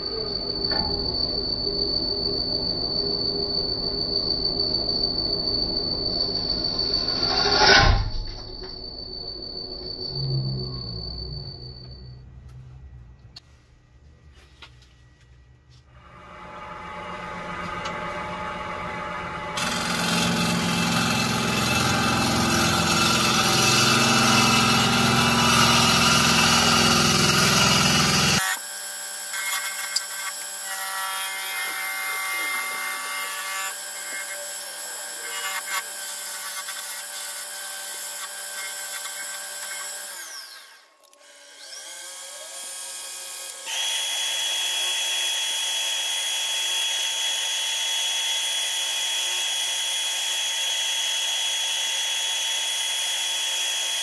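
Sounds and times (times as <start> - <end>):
sanding pad whining on bowl: 15.9 - 28.6
turning tool cutting wood on lathe: 15.9 - 54.0.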